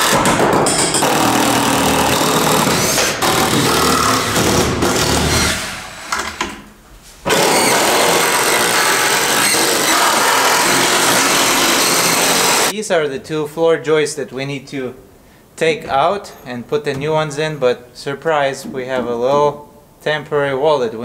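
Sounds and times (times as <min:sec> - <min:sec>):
cordless drill driving screws: 0:07.3 - 0:12.7.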